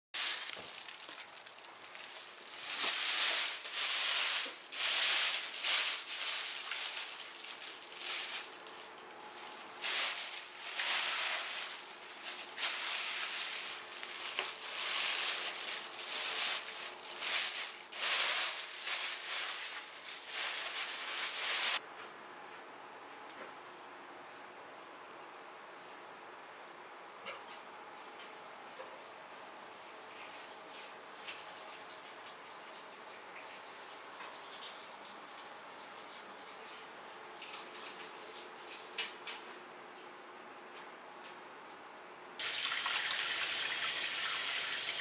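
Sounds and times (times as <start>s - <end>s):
plastic bags crinkling: 0.2s - 21.8s.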